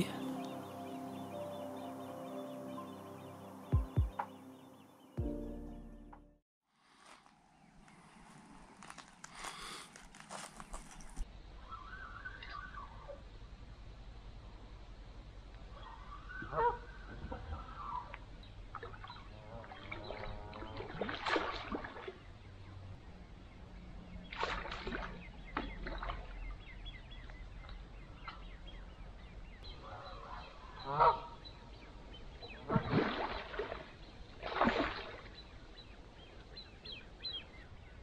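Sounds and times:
geese honking: 29.9 - 31.4.

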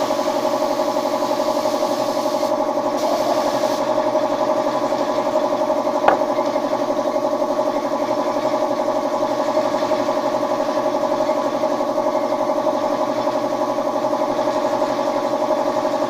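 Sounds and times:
air hissing: 0.0 - 4.0.

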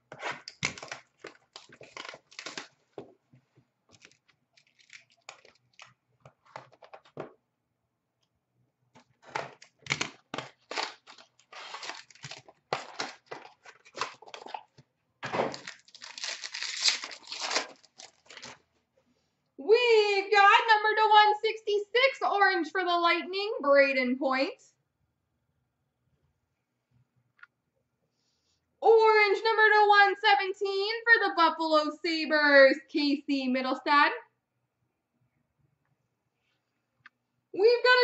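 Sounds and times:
plastic wrap crinkling and ripping: 0.1 - 2.9, 3.9 - 6.8, 9.5 - 14.8, 15.4 - 18.6
cardboard box tearing: 10.4 - 14.5, 15.5 - 18.5.

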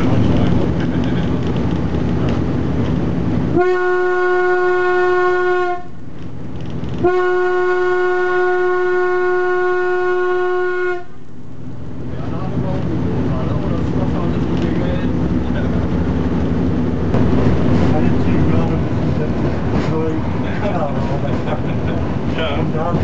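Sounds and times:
railcar rumbling on track: 0.0 - 23.0
railcar horn blasts: 3.5 - 6.0, 7.0 - 11.2.

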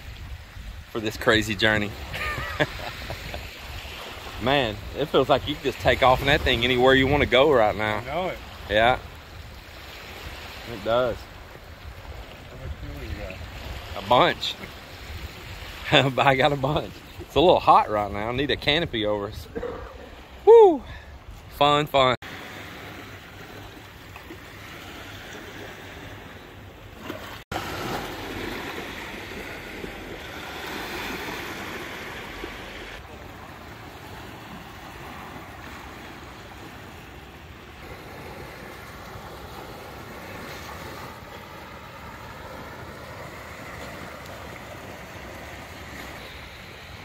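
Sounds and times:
wind on microphone: 0.0 - 1.0
waves washing onto pebbles: 0.0 - 17.2, 22.2 - 47.0.

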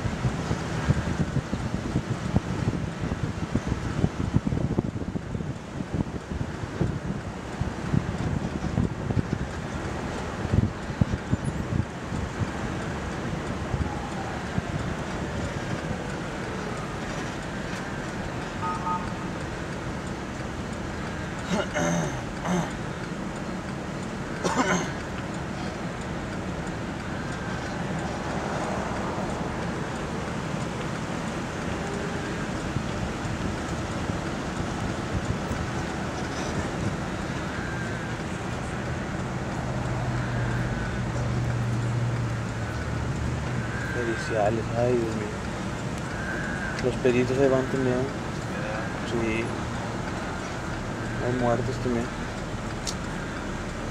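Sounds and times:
wind on microphone: 0.0 - 20.4, 26.4 - 53.9
car road and engine noise: 0.0 - 53.9
highway traffic hum: 0.0 - 53.9
short beeps: 18.6 - 19.1.

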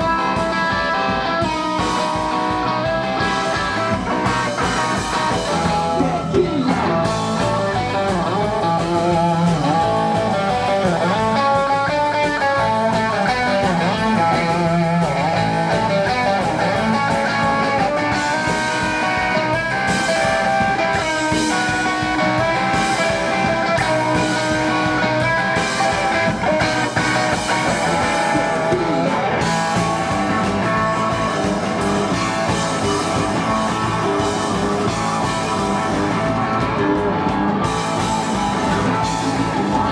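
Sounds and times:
electric guitar: 0.0 - 39.9
electric keyboard: 0.0 - 39.9
rock band playing live: 0.0 - 39.9.

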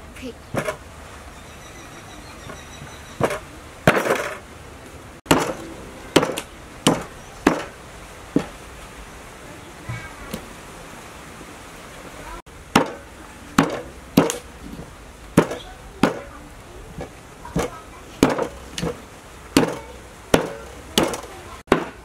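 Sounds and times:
axe chopping on wooden block: 3.2 - 4.4, 5.3 - 5.6, 6.2 - 7.8, 12.7 - 14.5, 15.4 - 16.3, 17.0 - 19.0, 19.6 - 22.0.

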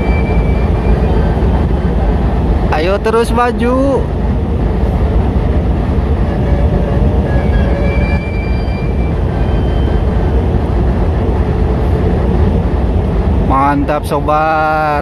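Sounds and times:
faint thin squeal: 0.0 - 1.6, 6.2 - 10.4
train wheels rumbling on rail: 0.0 - 15.0.

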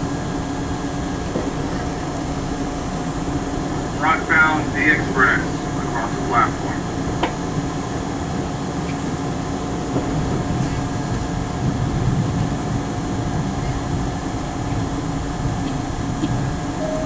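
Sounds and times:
steady hum: 0.0 - 7.7
subway train rumbling: 0.0 - 17.0.

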